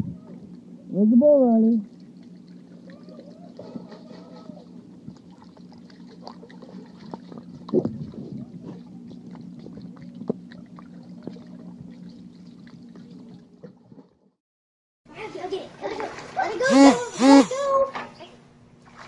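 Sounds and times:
muffled underwater hum: 1.8s - 14.1s.

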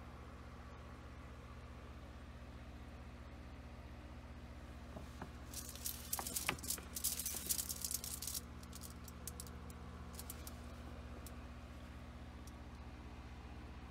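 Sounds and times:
steady low hum: 0.0s - 13.9s
crackly rustling and clicks: 5.0s - 11.4s.

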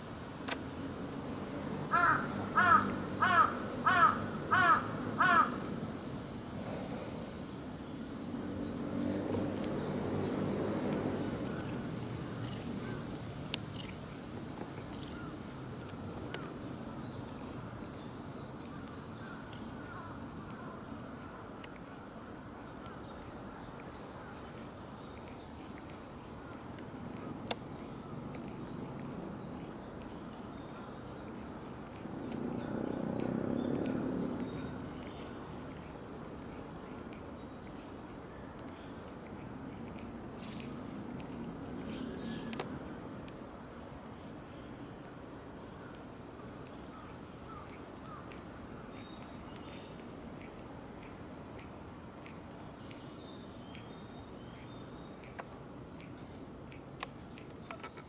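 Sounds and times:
low outdoor background: 0.0s - 58.0s
crow cawing: 1.9s - 5.6s.

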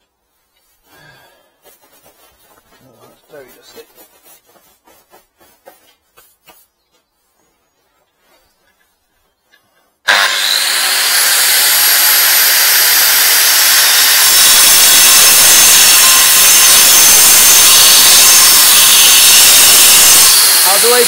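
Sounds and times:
angle grinder cutting concrete: 10.1s - 21.0s.

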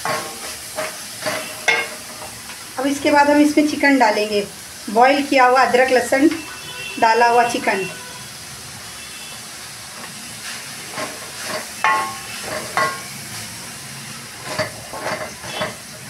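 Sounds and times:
wooden spatula scraping a pan: 0.0s - 2.4s, 10.0s - 13.1s, 14.4s - 15.8s
food sizzling in a metal pan: 0.0s - 16.0s.

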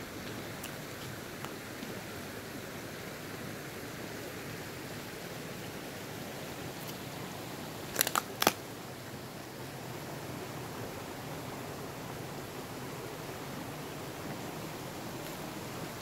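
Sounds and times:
sharp clicks: 7.9s - 8.6s.

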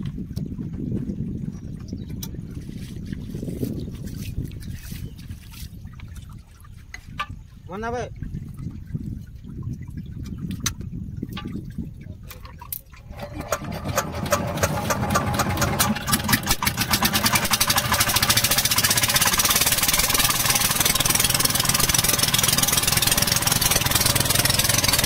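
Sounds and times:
small boat engine starting up: 12.5s - 25.0s.

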